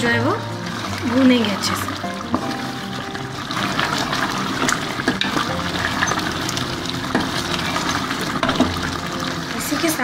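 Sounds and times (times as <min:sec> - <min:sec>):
gravy bubbling and sizzling: 0:00.0 - 0:10.0
wooden spoon stirring: 0:00.0 - 0:10.0.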